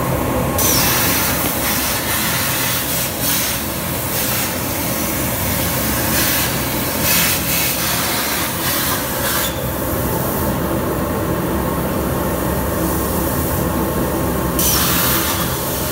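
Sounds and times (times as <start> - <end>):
low machine hum: 0.0 - 15.9
plasma torch hissing: 0.6 - 9.6, 14.6 - 15.9.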